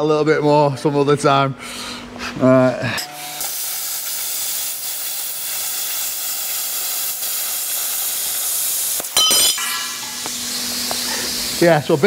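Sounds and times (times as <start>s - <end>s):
plasma cutter hissing: 3.0s - 12.0s.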